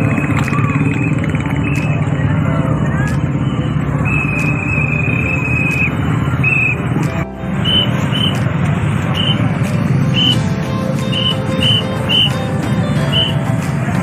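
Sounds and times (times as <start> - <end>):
crowd voices: 0.0 - 14.0
vehicle engines: 0.0 - 14.0
high tone blasts: 7.6 - 8.4.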